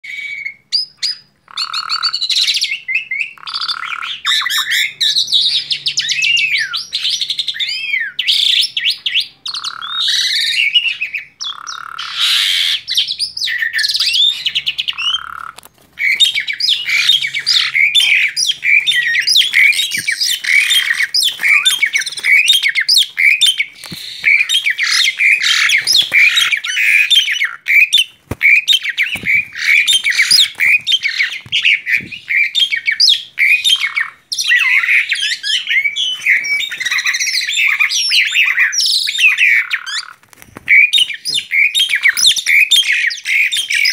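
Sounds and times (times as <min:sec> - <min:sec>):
starling chattering song: 0:01.5 - 0:43.5.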